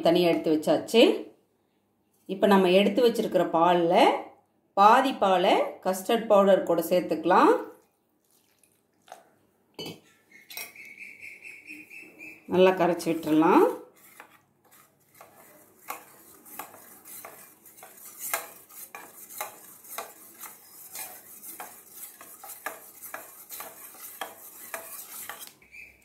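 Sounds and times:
spoon scraping steel bowl: 9.8s - 11.0s, 12.6s - 26.0s.

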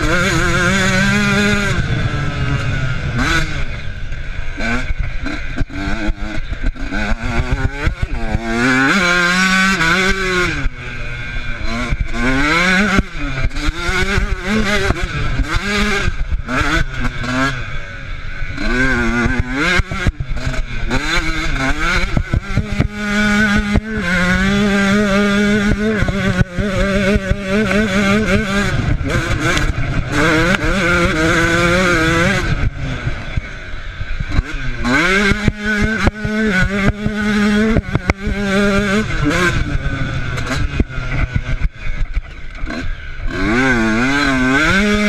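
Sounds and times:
motorcycle engine revving: 0.0s - 45.0s
knocks and clatter on rough ground: 34.2s - 45.0s.

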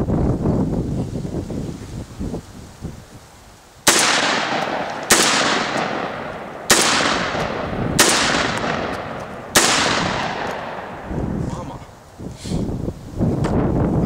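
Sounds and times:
shotgun blasts echoing: 3.8s - 11.3s.

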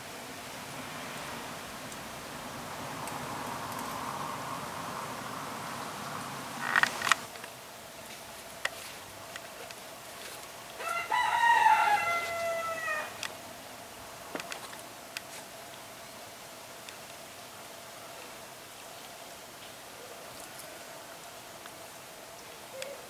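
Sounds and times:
rooster crowing: 10.8s - 13.3s.

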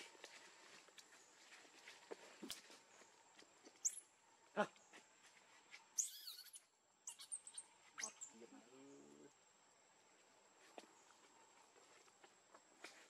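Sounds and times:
monkey squeal falling in pitch: 6.0s - 8.2s
monkeys squeaking: 6.0s - 8.3s.

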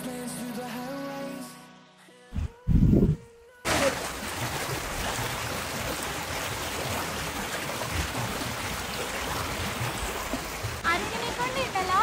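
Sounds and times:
flowing stream rushing: 3.7s - 12.0s.

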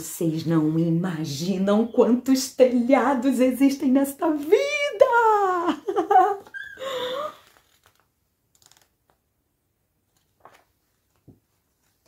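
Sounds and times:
woman's voice: 0.0s - 6.4s
paper book pages rustling: 7.3s - 9.3s, 10.0s - 12.0s.

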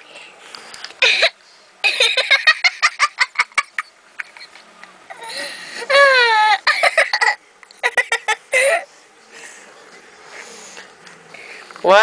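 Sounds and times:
girl giggling: 1.0s - 8.9s
girl squealing with laughter: 5.8s - 7.4s.

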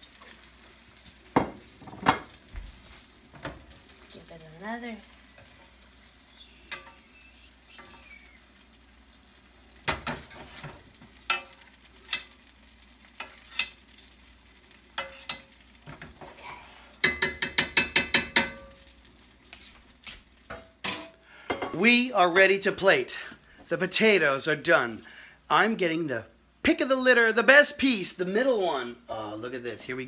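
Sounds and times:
fish sizzling in a skillet: 0.0s - 21.7s
metal spoon clinking on pan: 6.7s - 7.0s, 11.2s - 12.4s, 13.2s - 13.8s, 15.0s - 15.6s, 17.0s - 18.9s.

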